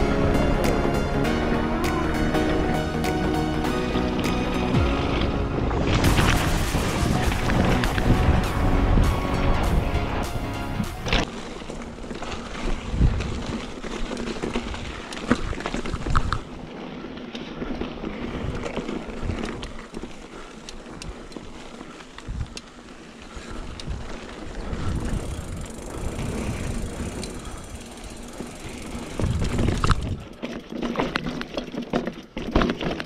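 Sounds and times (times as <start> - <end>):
bike tyres rolling over dirt: 0.0 - 33.0
wind rumble on microphone: 4.7 - 11.3, 12.5 - 16.5, 23.4 - 30.4
bike rattles and knocks: 10.9 - 33.0.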